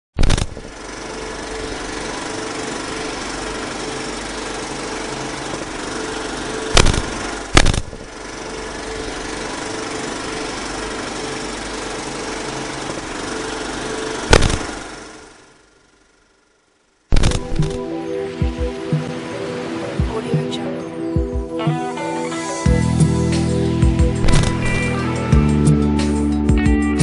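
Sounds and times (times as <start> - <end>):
film projector clatter: 0.2 - 16.0, 17.2 - 20.9, 24.2 - 25.0
loud hits: 6.7 - 8.2, 14.3 - 15.0, 24.2 - 25.0.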